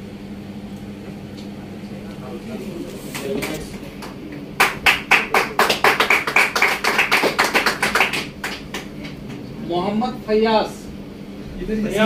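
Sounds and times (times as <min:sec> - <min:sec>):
people clapping: 0:03.1 - 0:09.5.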